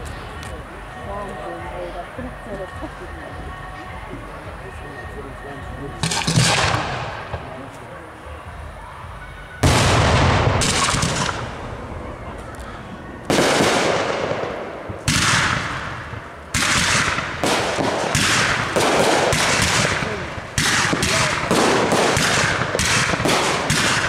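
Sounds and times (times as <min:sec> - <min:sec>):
fireworks bangs with hiss: 0:06.0 - 0:07.6, 0:09.6 - 0:11.6, 0:13.3 - 0:24.0.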